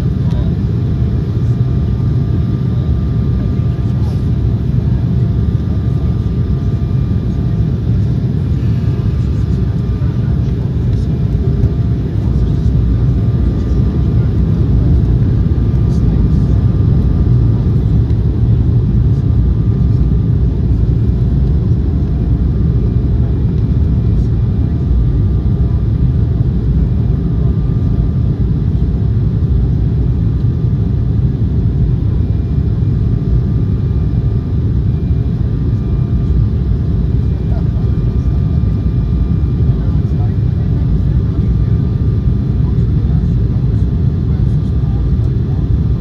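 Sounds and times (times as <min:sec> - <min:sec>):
airliner cabin rumble: 0:00.0 - 0:46.0
faint engine tones: 0:00.1 - 0:29.0.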